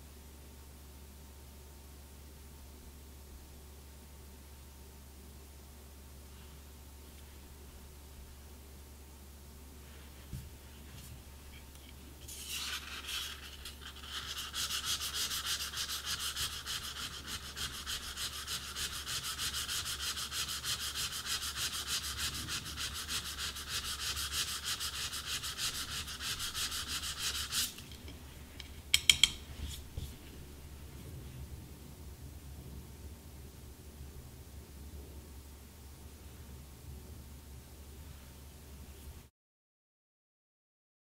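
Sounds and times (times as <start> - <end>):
reed sanded on sandpaper: 12.2 - 27.8.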